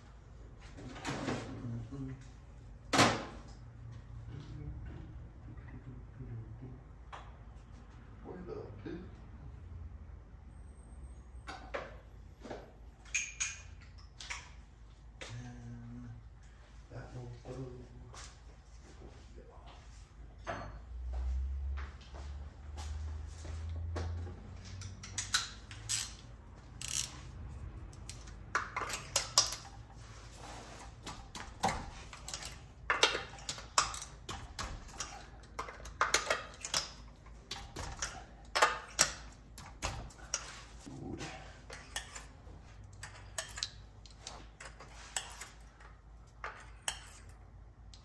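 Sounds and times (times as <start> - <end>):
metal tools clinking: 24.9 - 40.9, 41.7 - 47.4
ratchet clicking: 25.0 - 27.2.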